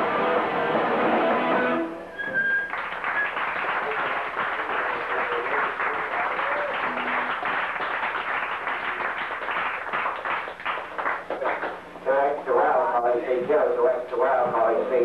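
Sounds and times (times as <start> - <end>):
audience applauding: 2.4 - 11.9.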